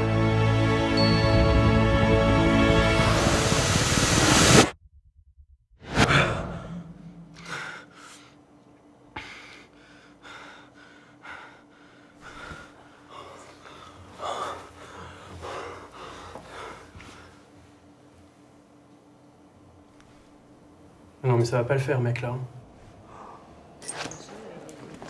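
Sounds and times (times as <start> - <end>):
faint steady hum: 6.1 - 25.0.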